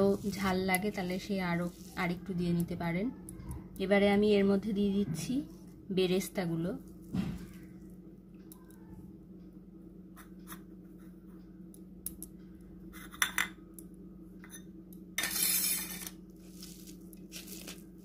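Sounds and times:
crunching rustle: 0:16.4 - 0:18.0.

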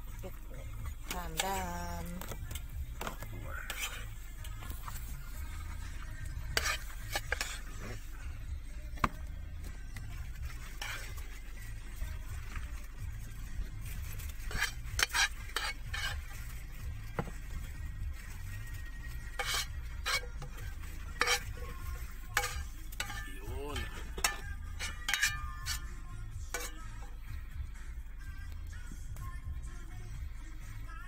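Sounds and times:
steady low hum: 0:00.0 - 0:31.0
plastic paddle scraping a pan: 0:03.0 - 0:04.2, 0:06.5 - 0:08.0, 0:10.4 - 0:11.4, 0:13.8 - 0:17.5, 0:19.2 - 0:25.9, 0:26.5 - 0:27.1.

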